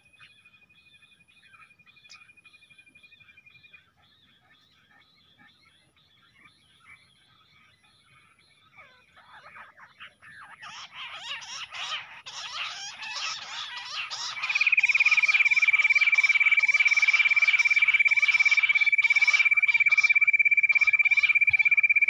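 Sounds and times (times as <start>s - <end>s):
quail chirping whistles: 10.6s - 22.0s.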